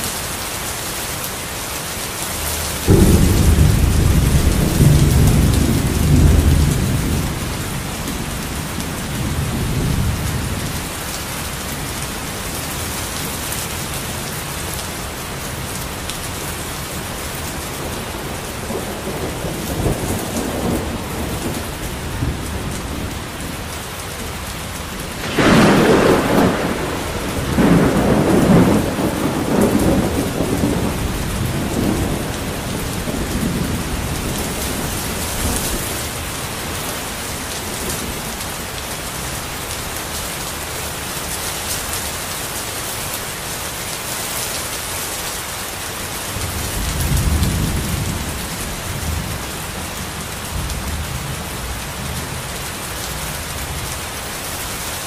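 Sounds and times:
steady rain: 0.0s - 55.0s
loud thunderclap: 2.8s - 10.8s, 25.0s - 38.2s, 46.4s - 52.4s
low rumble of thunder: 2.8s - 14.8s, 15.8s - 39.7s, 46.4s - 54.5s.

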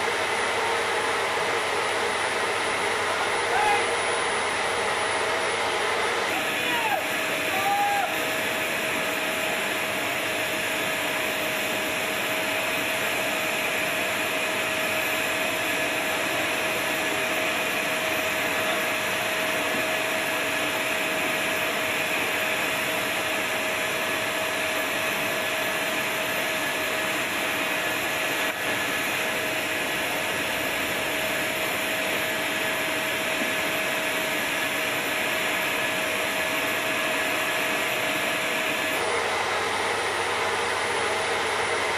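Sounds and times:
turbine running with whine: 0.0s - 41.9s.

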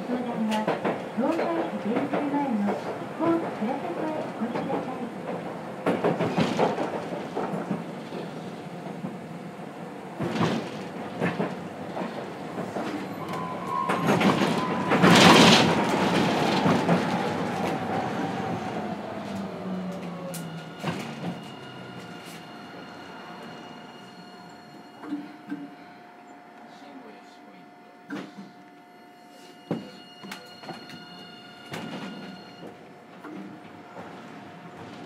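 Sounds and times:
tram motor tone falling in pitch: 13.0s - 25.4s.

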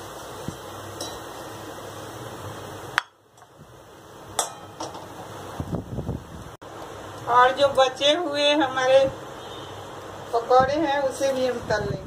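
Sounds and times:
hot oil sizzling: 0.0s - 12.0s
metal spoon clinking on wok: 1.0s - 1.3s, 4.4s - 5.0s.

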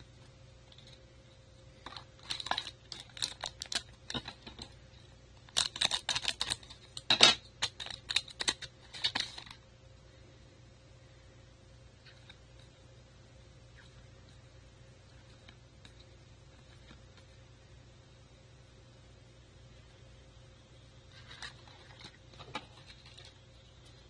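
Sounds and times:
foil wrapper crinkling: 1.8s - 4.8s, 5.4s - 9.6s.

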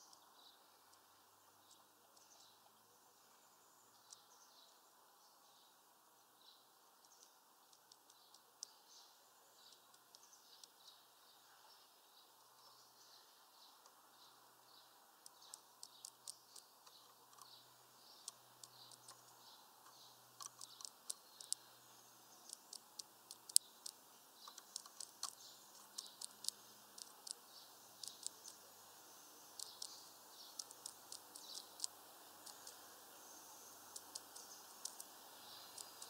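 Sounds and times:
bird pecking at mesh feeder: 18.2s - 21.6s, 22.4s - 28.6s, 29.5s - 32.8s, 33.8s - 36.0s.

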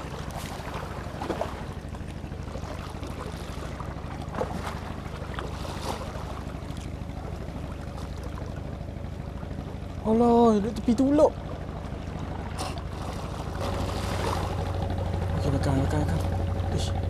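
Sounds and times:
boat engine droning: 0.0s - 17.0s.

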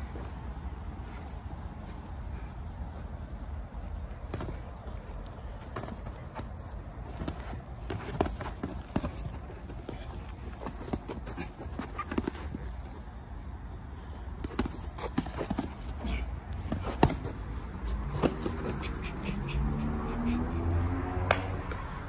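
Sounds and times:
boxing gloves landing: 16.5s - 17.5s.

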